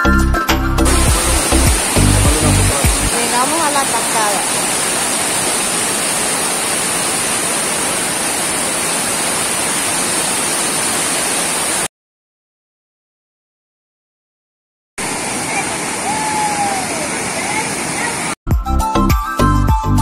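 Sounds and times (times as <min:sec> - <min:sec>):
water rushing over rocks: 0:00.9 - 0:11.9, 0:15.0 - 0:18.4.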